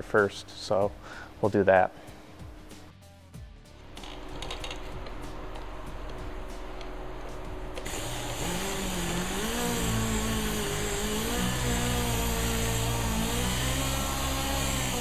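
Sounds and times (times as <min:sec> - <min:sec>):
electric drill running: 0:07.6 - 0:15.0.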